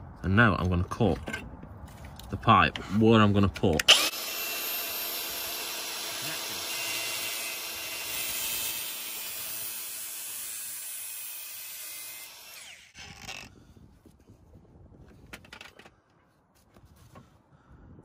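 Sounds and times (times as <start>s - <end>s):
angle grinder cutting metal pipe: 3.9s - 13.5s.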